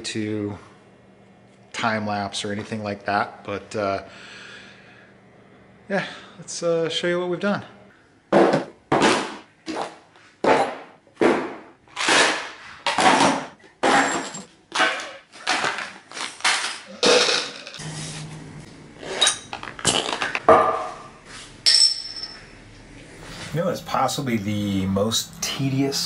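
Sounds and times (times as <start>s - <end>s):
boxes dropped on steel workbench: 10.4s - 17.6s.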